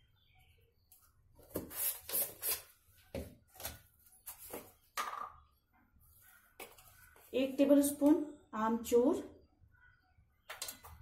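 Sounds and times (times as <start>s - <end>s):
plastic jars clicking and knocking: 10.4s - 11.0s.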